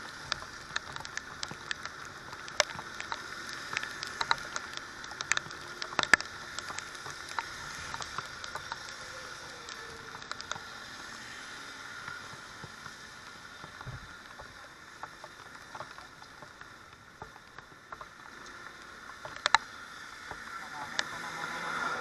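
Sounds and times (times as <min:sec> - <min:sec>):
tyres hissing on wet road: 0:00.0 - 0:22.0.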